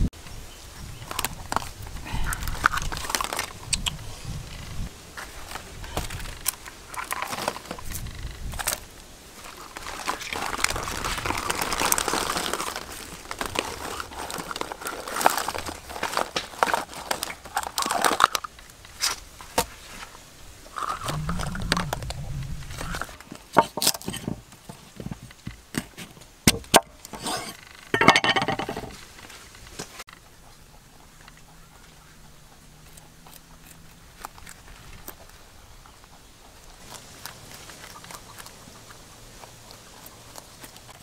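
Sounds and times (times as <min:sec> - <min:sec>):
rustling in wicker basket: 0:00.7 - 0:26.3.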